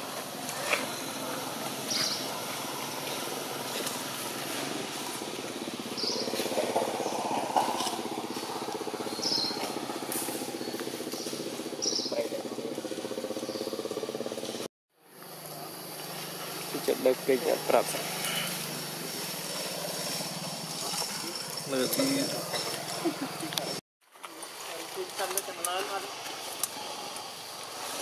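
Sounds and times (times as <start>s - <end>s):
engine running at low revs: 0.0s - 23.8s
insect hiss: 0.0s - 28.0s.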